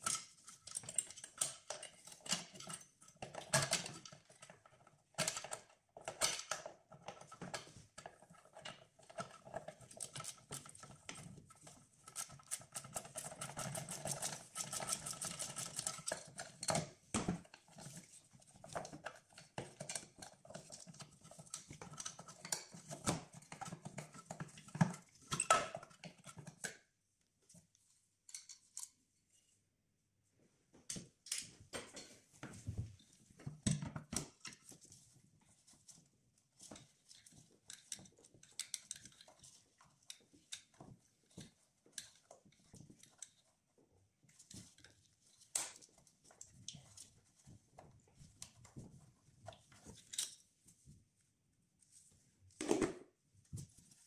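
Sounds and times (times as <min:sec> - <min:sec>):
hand tools clicking and rattling: 0:00.0 - 0:11.3, 0:12.1 - 0:17.0.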